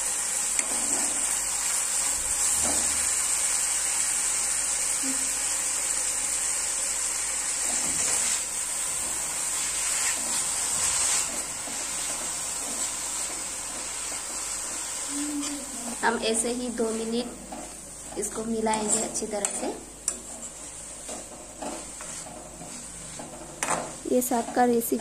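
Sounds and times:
garlic sizzling in hot oil: 0.0s - 25.0s
steel spoon scraping a pan: 18.7s - 23.8s.

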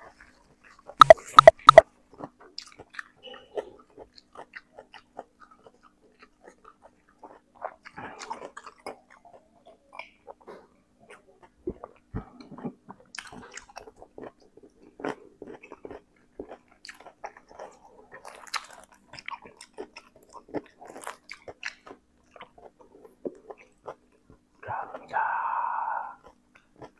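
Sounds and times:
man chewing and lip smacking: 0.0s - 25.1s, 26.2s - 26.9s
man swallowing: 1.0s - 1.8s.

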